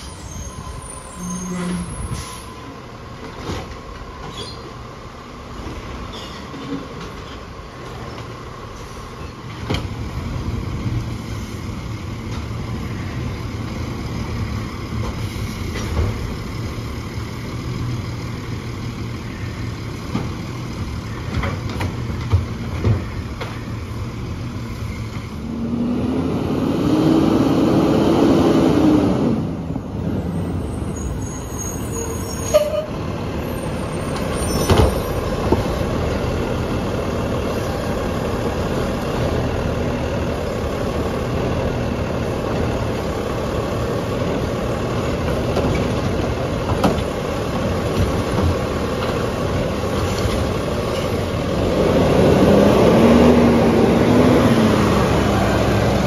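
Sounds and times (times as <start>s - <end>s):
diesel truck engine revving and idling: 23.8s - 31.0s, 32.9s - 56.0s.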